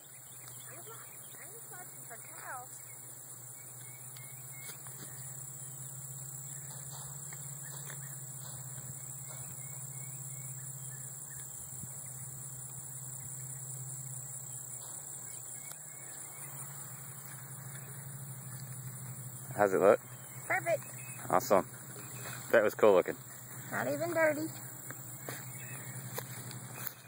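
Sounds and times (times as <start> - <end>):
insect chorus: 0.0 - 27.0
low hum: 0.2 - 27.0
footsteps through grass: 21.8 - 27.0.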